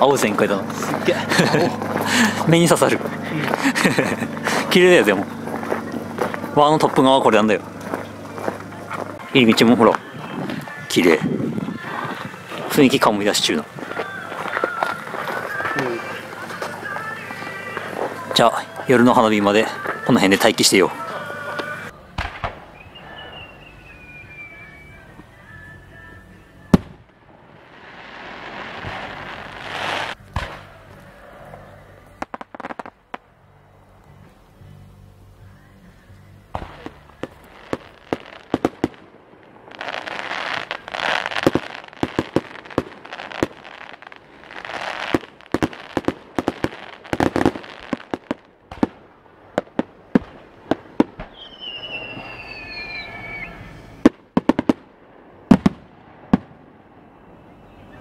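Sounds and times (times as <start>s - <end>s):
fireworks bursting with bangs: 0.0s - 33.6s, 36.5s - 58.0s
fireworks crackling hiss: 0.0s - 58.0s.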